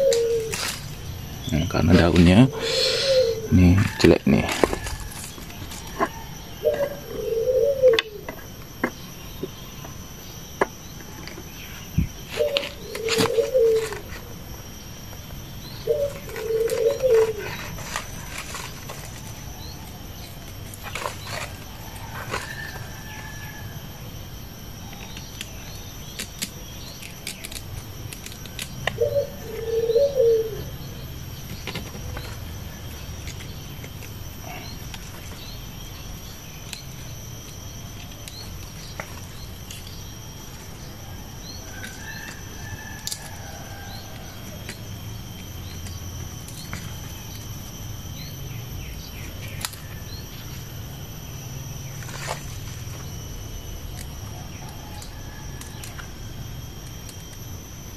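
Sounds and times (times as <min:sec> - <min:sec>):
dove cooing: 0:00.0 - 0:09.4, 0:11.5 - 0:14.4, 0:15.4 - 0:23.9, 0:28.5 - 0:31.0
high insect drone: 0:00.0 - 0:57.9.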